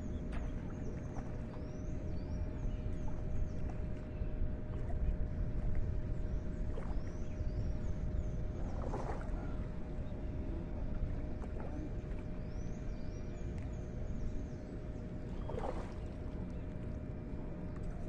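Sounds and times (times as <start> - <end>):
steady low rumble: 0.0 - 18.0
birds chirping: 6.2 - 16.8.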